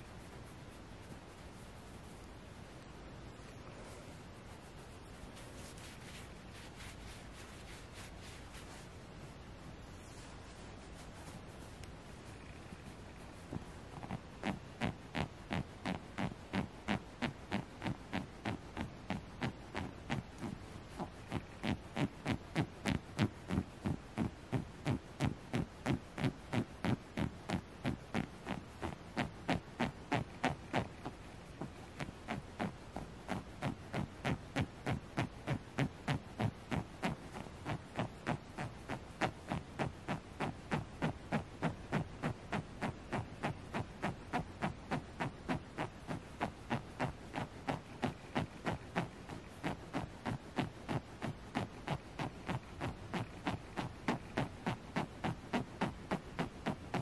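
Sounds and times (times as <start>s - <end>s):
fingernails scratching plush fabric: 3.9s - 9.0s, 10.0s - 57.0s.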